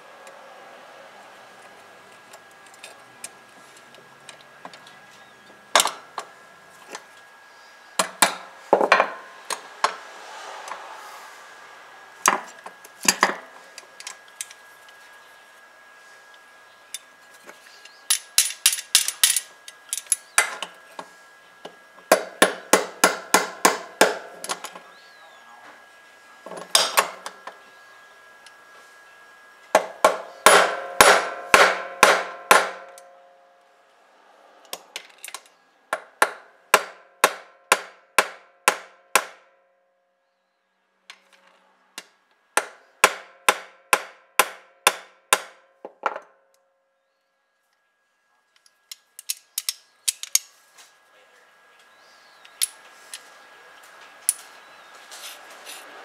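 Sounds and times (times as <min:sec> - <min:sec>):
hammer striking metal: 0:29.8 - 0:33.2, 0:36.0 - 0:39.5, 0:42.6 - 0:45.6.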